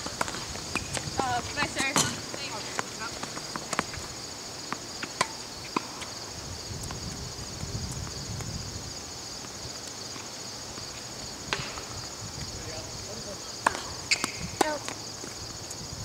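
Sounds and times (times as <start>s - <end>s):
high-pitched insect chorus: 0.0s - 16.0s
tennis ball knocks: 11.5s - 11.9s, 13.6s - 15.0s.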